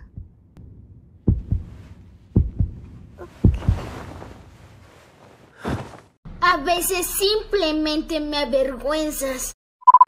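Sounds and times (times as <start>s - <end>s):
heartbeat thumps: 0.0s - 4.4s.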